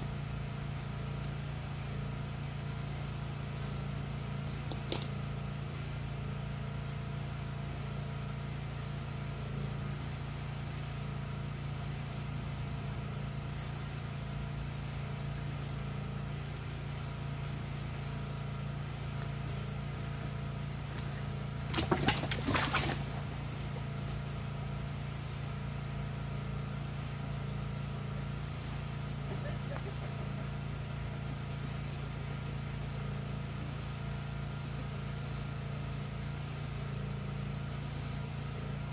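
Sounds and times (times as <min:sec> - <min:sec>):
engine drone: 0:00.0 - 0:38.9
branches snapping: 0:02.9 - 0:05.4, 0:20.8 - 0:24.3, 0:28.5 - 0:28.9.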